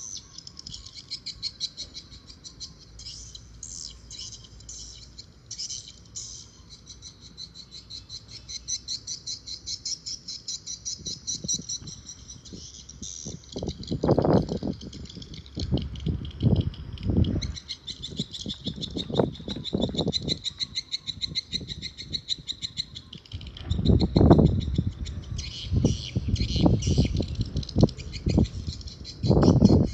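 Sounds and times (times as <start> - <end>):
bird chirping in a fast trill: 0.0 - 29.9
wind buffeting the microphone: 10.9 - 29.9.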